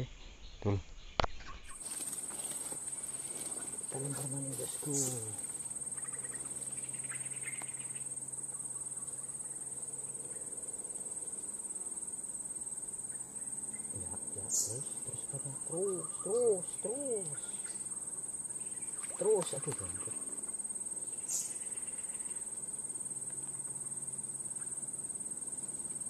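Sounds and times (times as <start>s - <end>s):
insects trilling: 0.0s - 26.0s
man murmuring: 14.0s - 17.6s.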